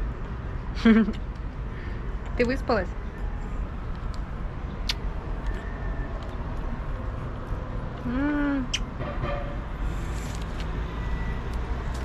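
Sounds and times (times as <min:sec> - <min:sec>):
low street rumble: 0:00.0 - 0:12.0.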